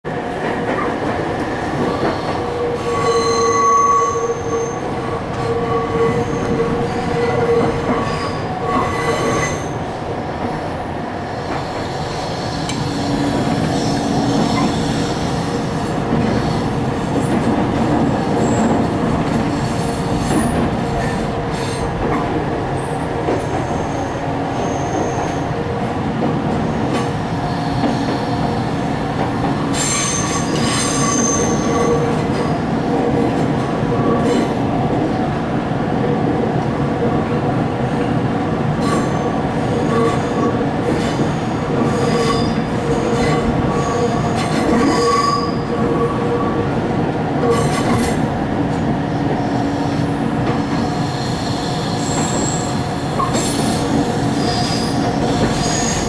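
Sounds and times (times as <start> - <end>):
wheels rumbling on rail: 0.1 - 56.0
high-pitched wheel squeal: 2.2 - 9.8, 29.7 - 32.0, 44.8 - 45.7, 51.0 - 56.0.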